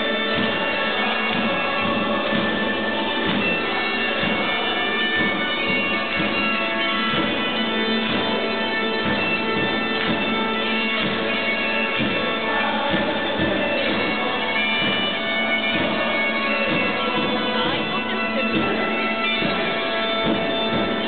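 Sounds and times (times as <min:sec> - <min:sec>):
crowd singing a chant: 0:00.0 - 0:06.4, 0:10.9 - 0:21.0
bagpipe tune with drone: 0:00.0 - 0:21.0.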